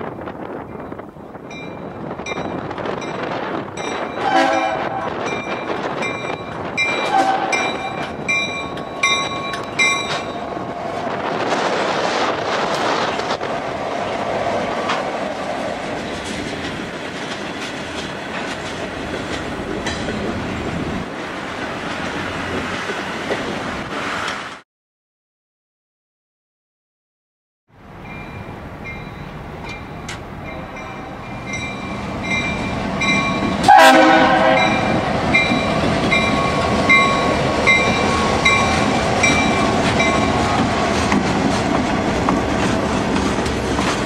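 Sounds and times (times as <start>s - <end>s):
train wheels rumbling over rails: 0.0s - 24.6s, 27.8s - 44.0s
crossing bell ringing: 0.6s - 10.7s, 27.9s - 40.6s
locomotive horn blasts: 4.2s - 5.3s, 7.0s - 8.0s, 33.6s - 35.1s.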